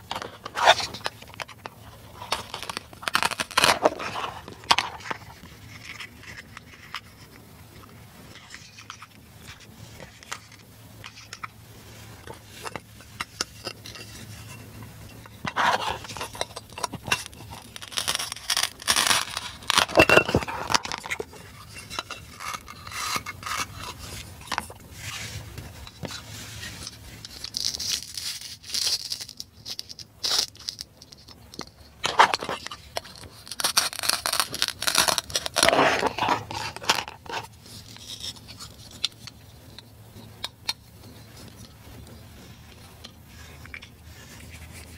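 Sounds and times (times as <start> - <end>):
plastic clicks and scrapes: 0.0 - 44.9
velcro tearing apart: 2.2 - 4.8, 17.3 - 21.2, 27.3 - 30.8, 33.0 - 37.4.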